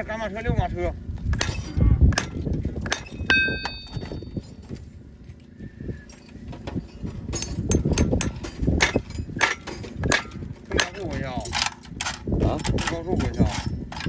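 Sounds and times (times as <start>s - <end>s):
hammer tapping horseshoe nails: 7.3s - 14.0s.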